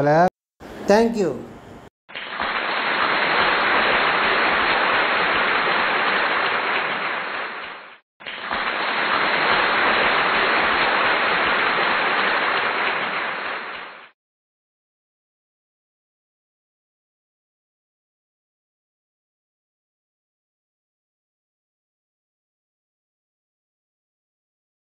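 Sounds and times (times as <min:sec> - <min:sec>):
crowd applauding: 0:02.2 - 0:14.1.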